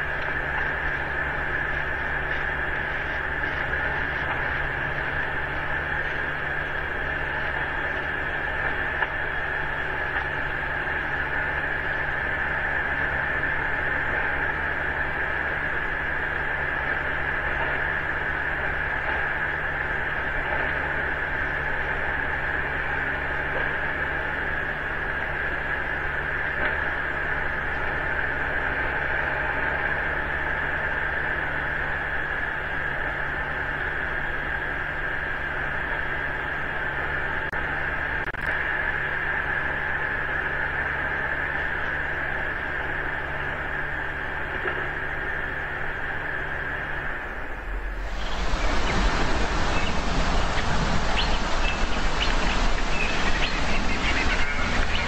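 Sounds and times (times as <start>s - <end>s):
electronic hiss: 0.0s - 55.0s
low mains hum: 0.0s - 55.0s.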